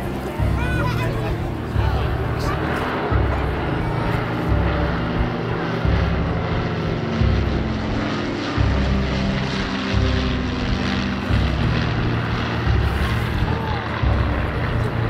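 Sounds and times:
propeller aircraft engines droning: 0.0s - 15.0s.

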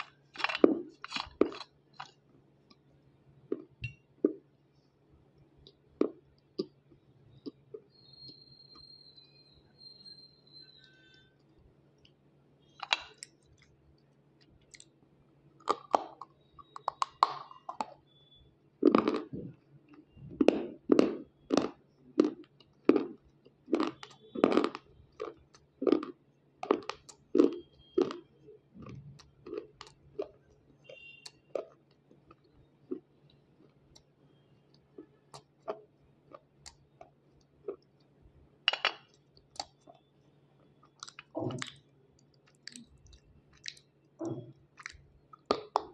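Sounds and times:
crunching and chewing: 0.0s - 2.9s, 3.5s - 4.5s, 5.6s - 8.9s, 10.7s - 15.0s, 15.6s - 45.9s.

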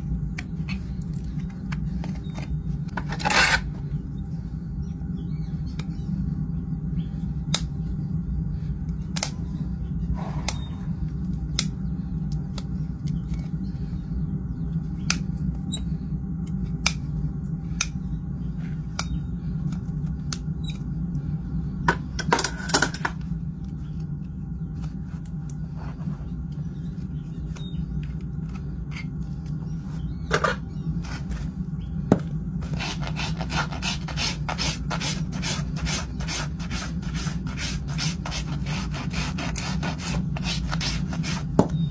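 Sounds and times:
low hum: 0.0s - 41.9s
hoof rasp filing: 32.6s - 41.7s.

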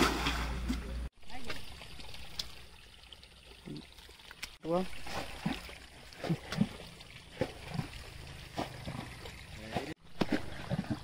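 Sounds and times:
water sloshing: 0.0s - 11.0s
wet mud squelching: 4.4s - 11.0s.

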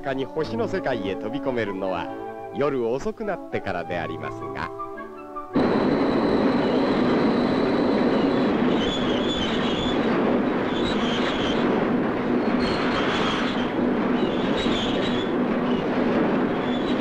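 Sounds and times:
factory machines running: 5.6s - 17.0s.

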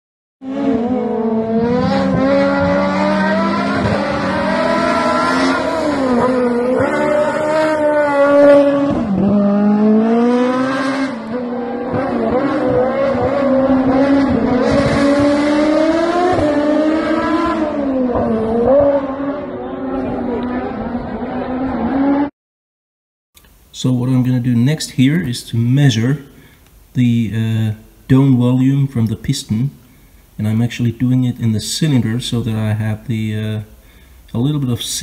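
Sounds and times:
race car engine at full throttle: 0.4s - 22.3s.

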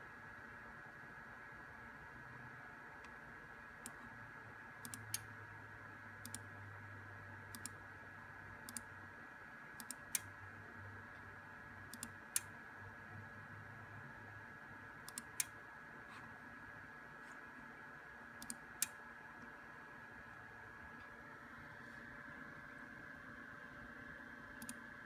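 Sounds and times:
faint high whine: 0.0s - 25.0s
low equipment hum: 0.0s - 25.0s
computer mouse clicks: 3.8s - 4.1s, 4.8s - 5.3s, 6.2s - 6.5s, 7.5s - 7.8s, 8.6s - 8.9s, 9.8s - 10.3s, 11.9s - 12.5s, 15.0s - 15.6s, 18.4s - 19.6s, 24.6s - 24.8s.

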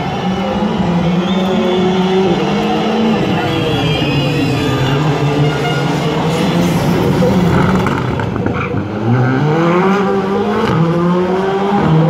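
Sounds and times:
rally car engine revving: 0.0s - 12.0s.

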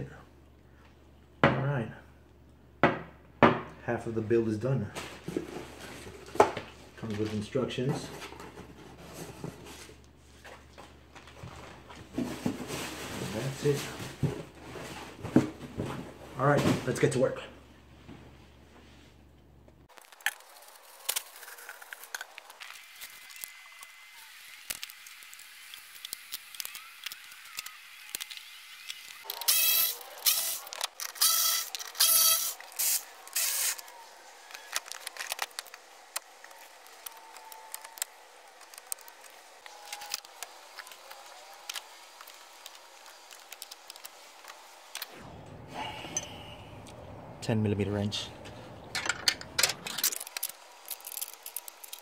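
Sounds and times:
hand tools clicking and scraping: 24.6s - 45.1s, 48.9s - 52.0s.

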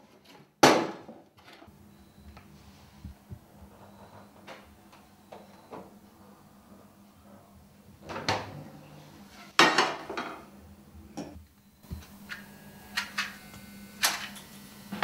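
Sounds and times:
kitchen knocks: 9.6s - 10.4s.

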